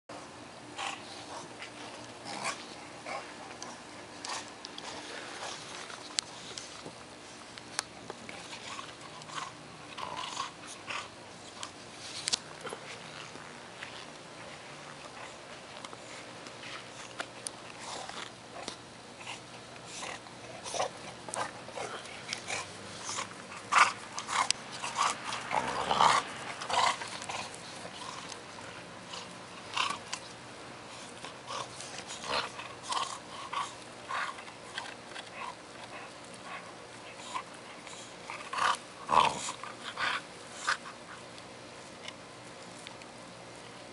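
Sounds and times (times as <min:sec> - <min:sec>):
dog growling: 0:00.7 - 0:05.9, 0:08.2 - 0:11.7, 0:16.1 - 0:30.3, 0:30.9 - 0:41.0
dog chewing wood: 0:07.6 - 0:43.1.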